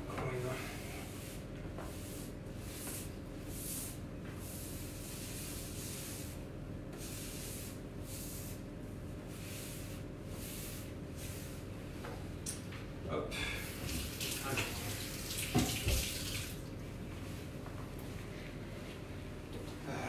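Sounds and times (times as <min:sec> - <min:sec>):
sponge scrubbing tabletop: 0:00.5 - 0:11.6.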